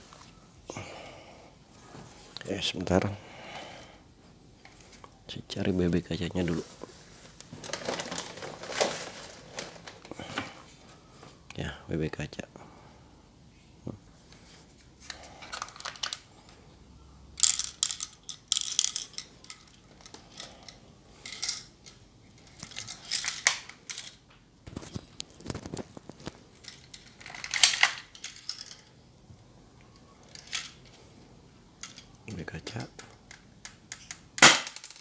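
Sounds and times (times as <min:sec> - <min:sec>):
toy pistol clicks and rattles: 0:17.4 - 0:24.2.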